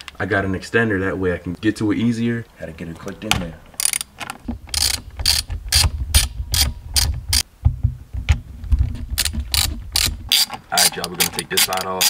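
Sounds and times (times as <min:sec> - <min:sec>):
hand ratchet clicking: 0:03.8 - 0:04.1, 0:04.7 - 0:07.4, 0:09.2 - 0:12.0.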